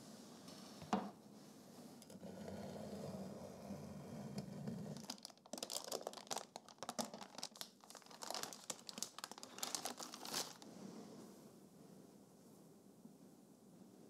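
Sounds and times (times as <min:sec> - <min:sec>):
parchment paper crinkling: 0:05.0 - 0:10.6.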